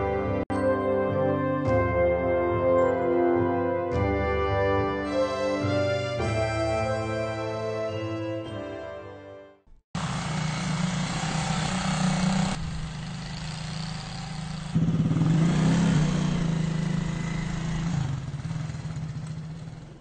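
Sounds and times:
music: 0.0 - 9.8
quad bike engines running: 10.0 - 20.0.

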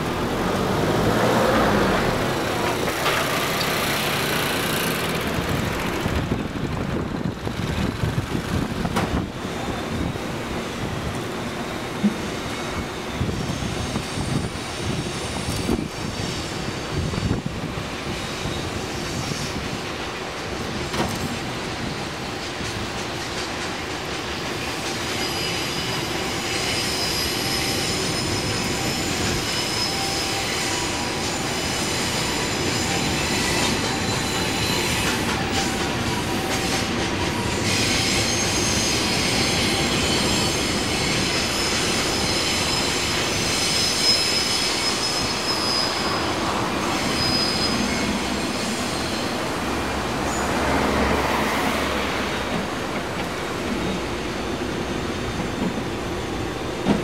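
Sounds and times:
train wheels rumbling: 0.0 - 57.0
high-pitched wheel squeals: 24.6 - 52.4.

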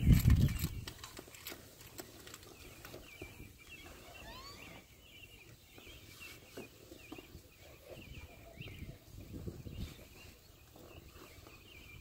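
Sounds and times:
faint bird chirping: 0.1 - 12.0
rising whistle: 4.2 - 4.8.

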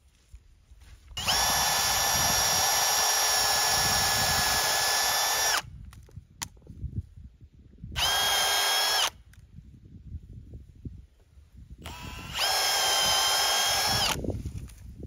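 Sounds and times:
power drill whining: 1.1 - 5.7, 8.0 - 9.2, 11.8 - 14.3.

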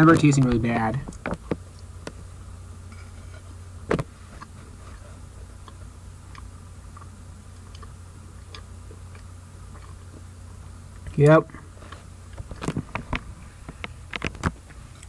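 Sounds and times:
steady low hum: 0.0 - 15.0
chewing clicks: 5.6 - 10.3.

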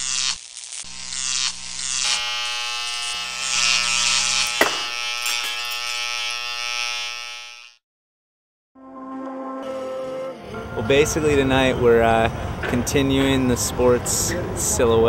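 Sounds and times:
buzzing drone: 0.0 - 7.8.

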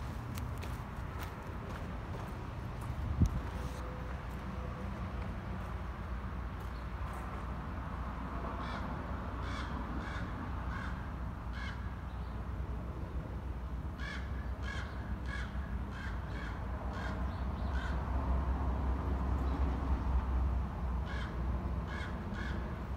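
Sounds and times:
bird cawing: 8.6 - 12.1, 14.0 - 18.1, 21.0 - 22.9.

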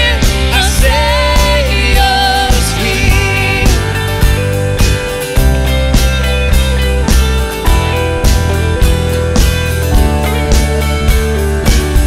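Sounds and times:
singers: 0.0 - 4.3
acoustic guitar: 0.0 - 12.0
bass guitar: 0.0 - 12.0
electric guitar: 0.0 - 12.0
keyboard: 0.0 - 12.0
steady drum beat: 0.0 - 12.0.

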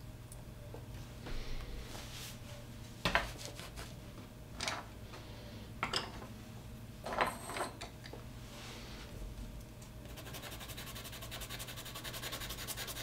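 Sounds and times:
faint room hum: 0.0 - 13.0
objects clattering on wooden desk: 7.0 - 8.0.

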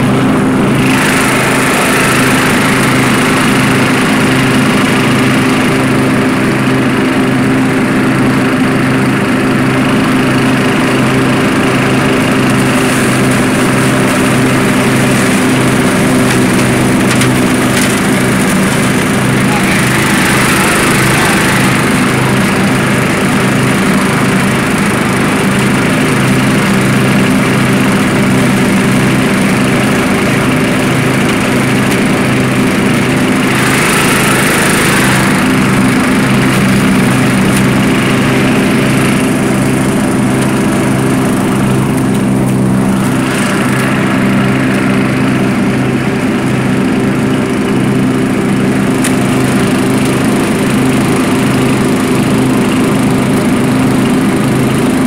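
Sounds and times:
riding mower engine hum: 0.0 - 55.0.

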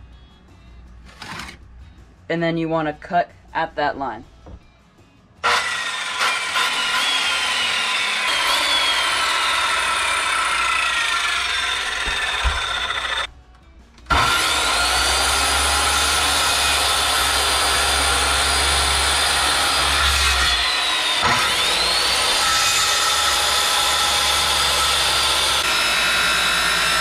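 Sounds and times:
circular saw cutting wood: 5.4 - 13.3, 14.1 - 27.0.

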